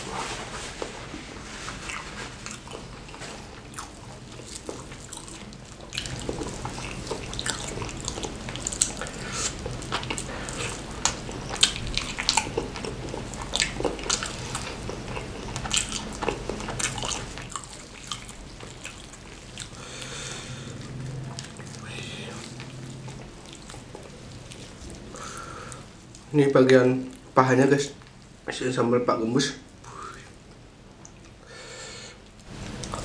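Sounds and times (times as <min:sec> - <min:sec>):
chewing and biting fried chicken: 0:01.7 - 0:25.9.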